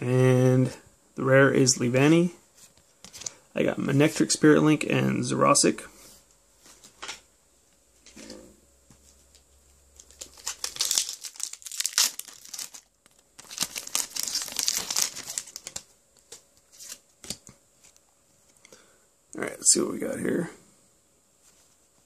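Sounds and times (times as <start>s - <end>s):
foil wrapper crinkling and tearing: 10.0s - 15.9s.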